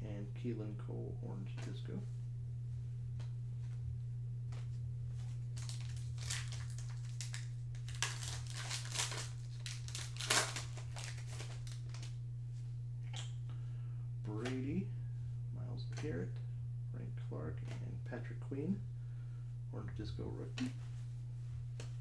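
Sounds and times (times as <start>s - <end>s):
low hum: 0.0s - 22.0s
foil wrapper tearing and crinkling: 5.6s - 12.2s.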